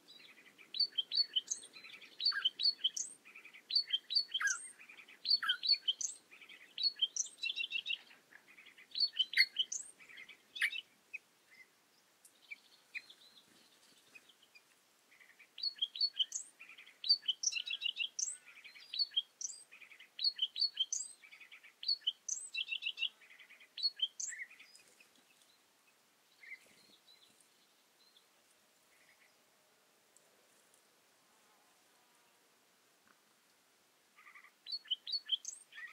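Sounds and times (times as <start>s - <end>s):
songbird singing trills and whistles: 0.1s - 11.7s, 15.5s - 25.0s, 34.2s - 35.9s.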